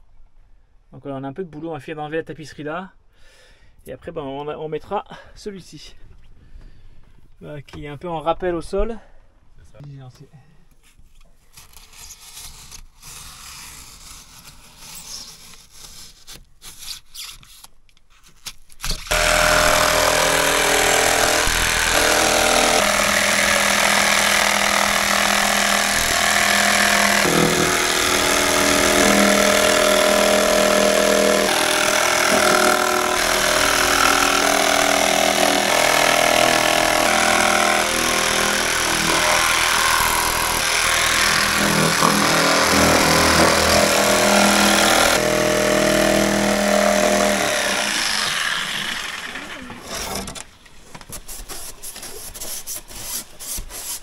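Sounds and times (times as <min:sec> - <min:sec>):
electric jigsaw cutting plywood: 0:19.1 - 0:50.4.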